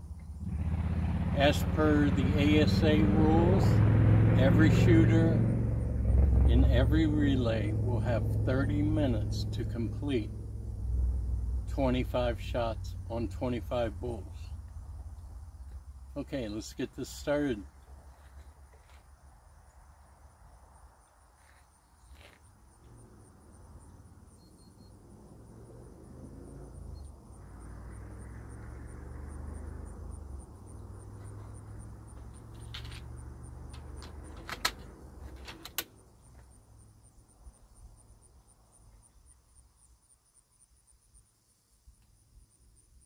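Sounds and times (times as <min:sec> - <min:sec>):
vehicle engine rumble: 0:00.0 - 0:39.3
insects buzzing: 0:10.1 - 0:16.6, 0:17.2 - 0:43.0
sharp clicks: 0:33.7 - 0:36.0.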